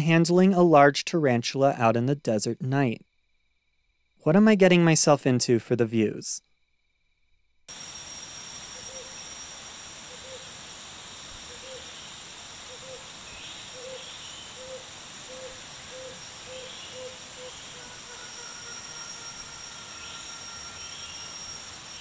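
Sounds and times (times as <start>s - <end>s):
insects chorus with high whine: 0.0s - 5.0s, 6.4s - 22.0s
faint higher chirps: 7.7s - 22.0s.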